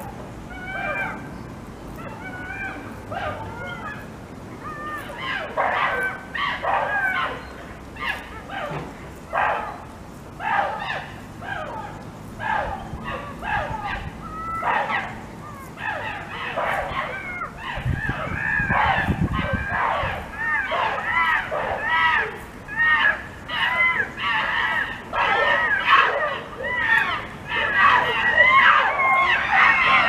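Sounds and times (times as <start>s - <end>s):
birds calling: 0.0s - 30.0s.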